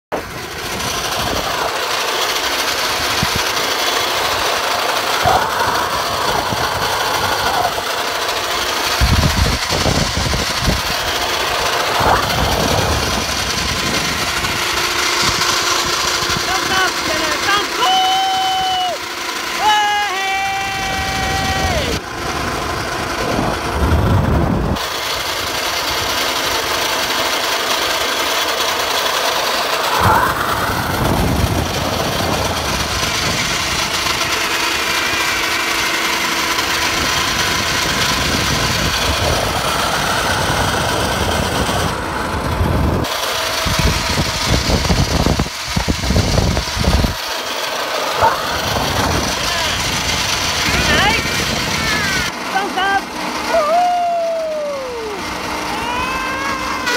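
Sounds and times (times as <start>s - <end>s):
zipline trolley on cable: 0.1s - 56.9s
wind buffeting microphone: 8.9s - 16.5s, 20.9s - 24.9s, 30.0s - 34.4s, 36.8s - 47.2s, 48.2s - 52.3s.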